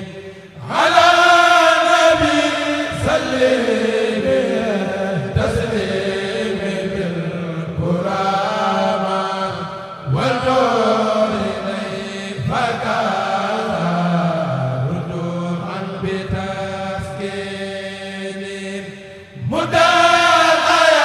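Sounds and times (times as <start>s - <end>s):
choir chanting: 0.0s - 21.0s.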